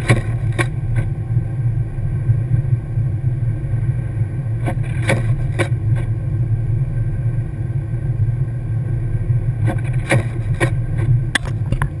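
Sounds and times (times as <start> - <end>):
engine and tyre rumble: 0.0 - 12.0.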